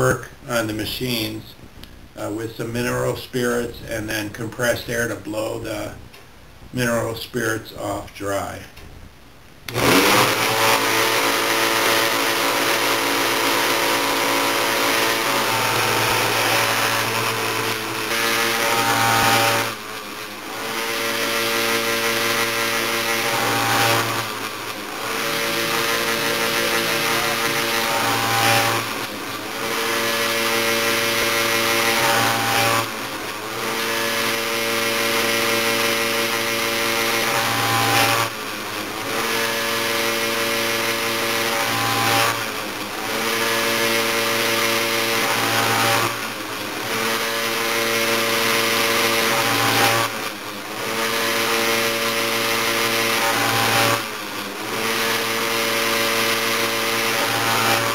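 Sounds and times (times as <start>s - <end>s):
chain grinder grinding: 9.7s - 57.9s.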